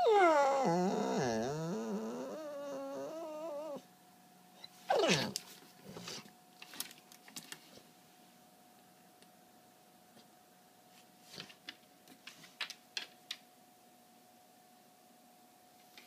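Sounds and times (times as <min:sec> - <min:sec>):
dog whining: 0:00.0 - 0:03.9, 0:04.6 - 0:05.4.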